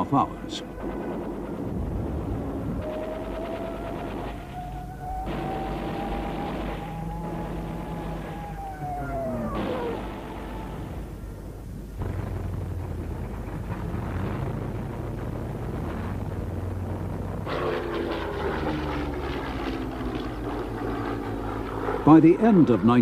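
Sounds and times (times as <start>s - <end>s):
propeller aircraft engine hum: 0.0s - 23.0s.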